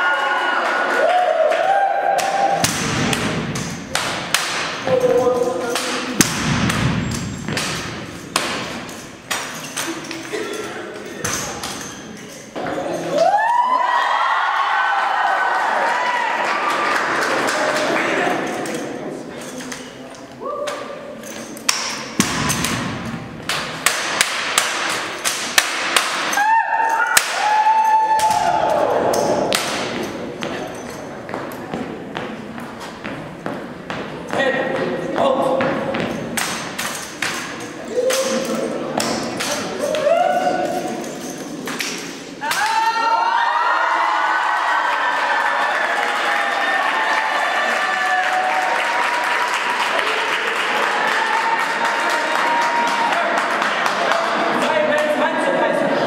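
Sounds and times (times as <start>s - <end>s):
spectators whooping: 0.0s - 2.6s, 13.1s - 16.9s, 26.3s - 29.5s, 42.5s - 50.2s
rifles cracking and slapping: 2.2s - 12.6s, 18.5s - 31.7s, 36.0s - 42.8s.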